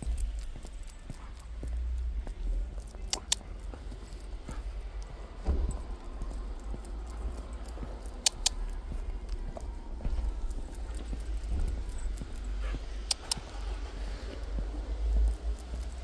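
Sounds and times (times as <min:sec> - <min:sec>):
metal leash clasp clinking: 0:00.0 - 0:02.1, 0:02.7 - 0:13.6, 0:15.2 - 0:16.0
low rumble: 0:00.0 - 0:16.0
dog claws tapping on concrete: 0:06.3 - 0:12.2.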